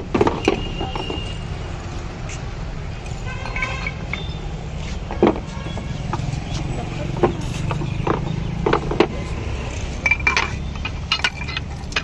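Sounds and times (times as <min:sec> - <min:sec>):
street traffic rumble: 0:00.0 - 0:12.0
glass bottles knocking: 0:07.2 - 0:09.2, 0:10.0 - 0:12.0.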